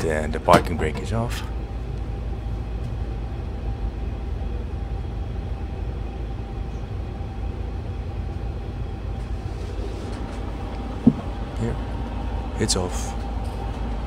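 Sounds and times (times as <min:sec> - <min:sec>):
aircraft cockpit systems humming: 0:00.0 - 0:14.0
faint steady whine: 0:00.0 - 0:14.0.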